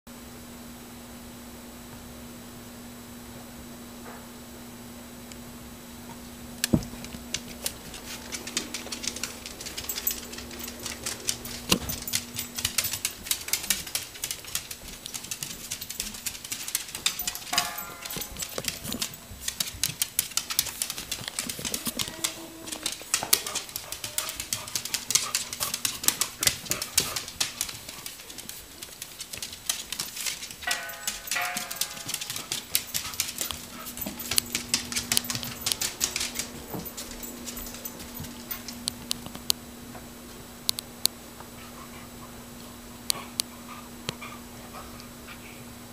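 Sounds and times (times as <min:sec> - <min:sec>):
claws and tags clicking on floor: 0:06.6 - 0:40.0
dog whining: 0:21.5 - 0:24.4.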